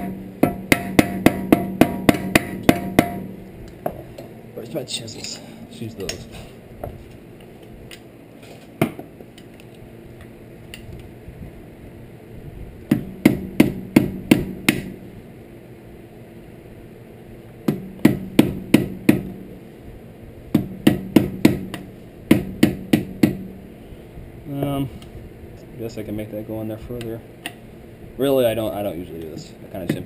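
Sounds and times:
hammer striking a chisel: 0:00.0 - 0:03.3, 0:12.9 - 0:15.0, 0:17.7 - 0:19.4, 0:20.6 - 0:23.5.

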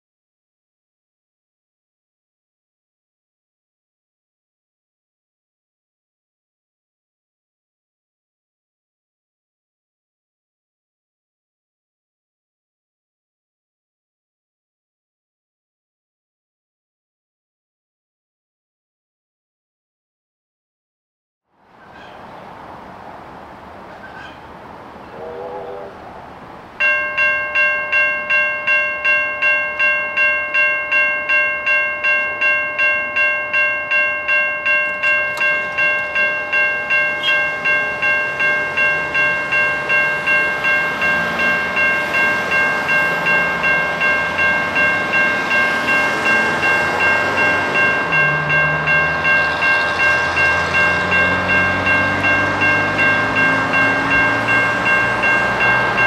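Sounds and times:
approaching train: 0:21.6 - 0:56.0
level crossing bells ringing: 0:26.8 - 0:56.0.

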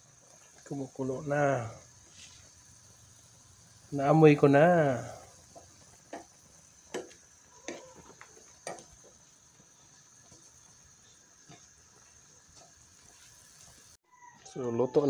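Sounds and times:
broth bubbling: 0:00.0 - 0:14.0
metal spoon scraping a pan: 0:06.9 - 0:08.9.

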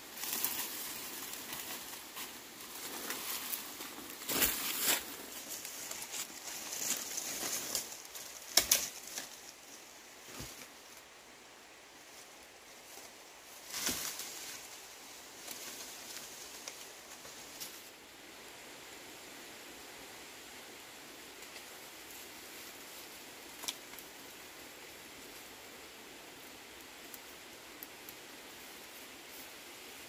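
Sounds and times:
dry leaves crackling underfoot: 0:00.0 - 0:11.0, 0:12.0 - 0:17.9
bamboo foliage rustling: 0:00.0 - 0:18.2, 0:20.8 - 0:30.0.

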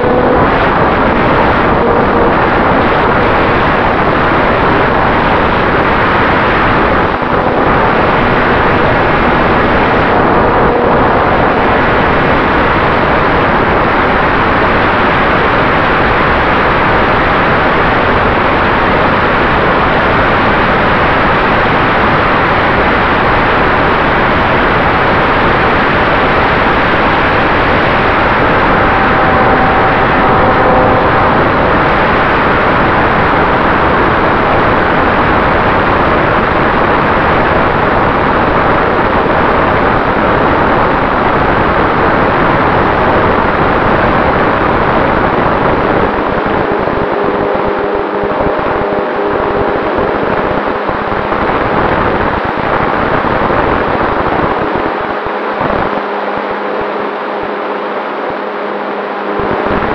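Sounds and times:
propeller and wind rush: 0:00.0 - 0:59.9
faint motor tone: 0:27.0 - 0:33.0.

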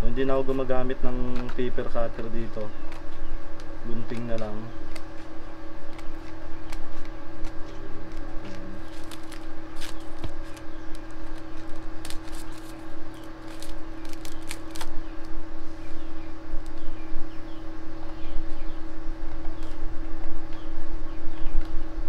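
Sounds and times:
steady low hum: 0:00.0 - 0:22.0
scissors snipping plastic sheet: 0:03.9 - 0:05.3, 0:05.9 - 0:14.9
plastic sheet rustling: 0:08.4 - 0:14.9.

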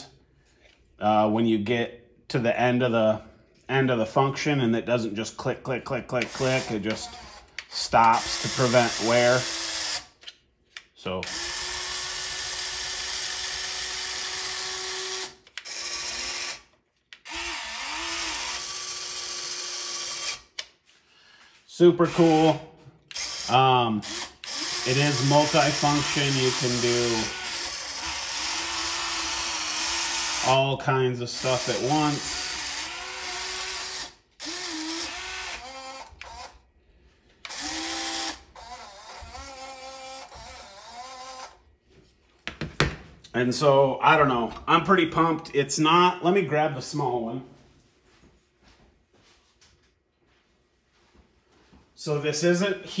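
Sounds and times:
toy excavator motors whirring: 0:11.2 - 0:20.7, 0:23.1 - 0:30.6, 0:31.4 - 0:36.6, 0:37.4 - 0:41.6.

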